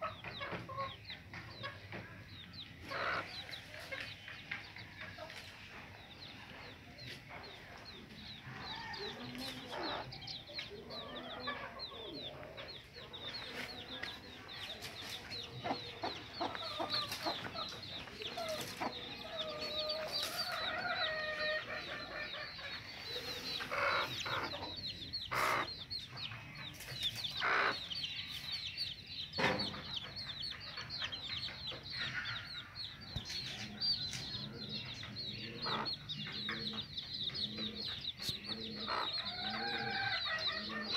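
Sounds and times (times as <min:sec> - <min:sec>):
chicks peeping: 0:00.0 - 0:40.9
hen clucking: 0:00.0 - 0:40.9.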